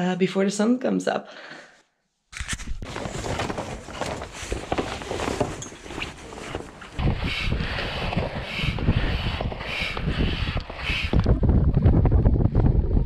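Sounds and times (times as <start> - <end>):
rustling handling noise: 2.4 - 7.0
wind buffeting microphone: 6.9 - 13.0.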